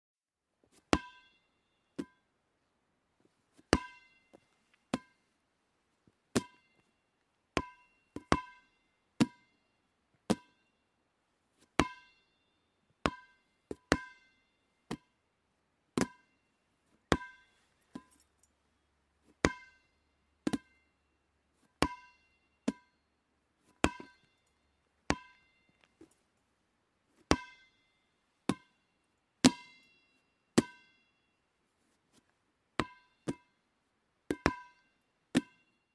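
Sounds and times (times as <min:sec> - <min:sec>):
rubber ball bouncing: 0:03.7 - 0:04.1, 0:04.9 - 0:05.2, 0:06.3 - 0:06.7, 0:07.6 - 0:08.6, 0:09.2 - 0:09.4, 0:10.3 - 0:10.5, 0:13.1 - 0:14.2, 0:16.0 - 0:16.2, 0:17.1 - 0:18.1, 0:19.4 - 0:19.8, 0:20.4 - 0:20.8, 0:21.8 - 0:22.9, 0:25.1 - 0:25.4, 0:28.5 - 0:28.7, 0:32.8 - 0:33.5, 0:34.3 - 0:35.6.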